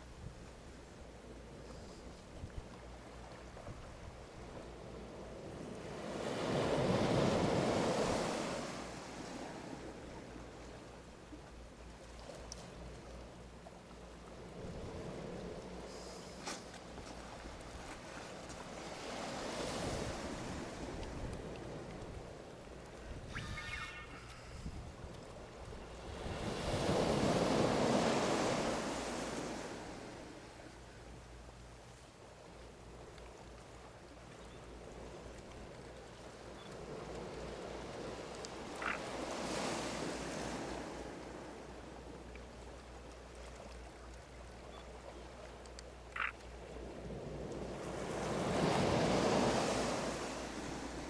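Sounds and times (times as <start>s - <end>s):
wind rumble on microphone: 19.5s - 28.1s.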